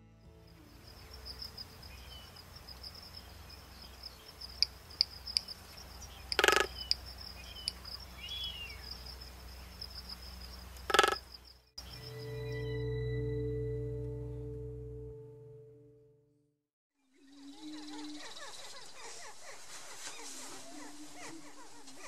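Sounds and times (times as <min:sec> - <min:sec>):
insects buzzing: 0:00.4 - 0:12.5
bird chirps: 0:00.6 - 0:14.4.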